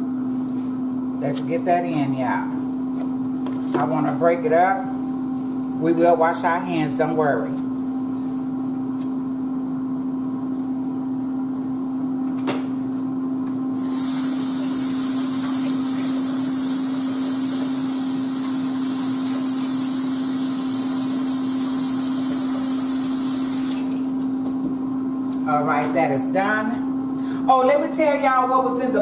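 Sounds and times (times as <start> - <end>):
tap water running: 13.8 - 24.8.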